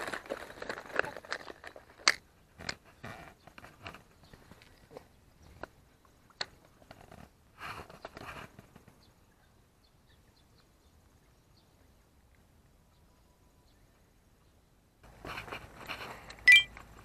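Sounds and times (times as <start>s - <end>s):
brief rustle: 15.0s - 17.0s.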